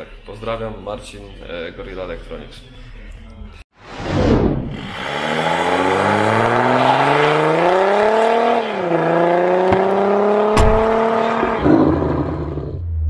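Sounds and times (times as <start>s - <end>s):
car engine accelerating hard: 4.8s - 13.0s.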